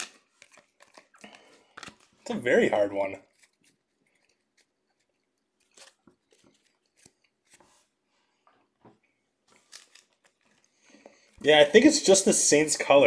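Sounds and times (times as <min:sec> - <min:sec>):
trading cards clicking and rustling: 0:00.0 - 0:02.4, 0:03.0 - 0:07.7, 0:09.5 - 0:11.7.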